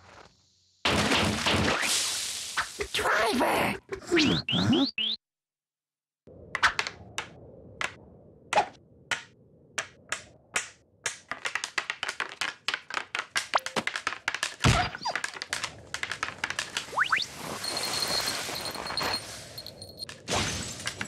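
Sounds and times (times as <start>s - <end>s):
wooden skis knocking: 9.1s - 18.0s.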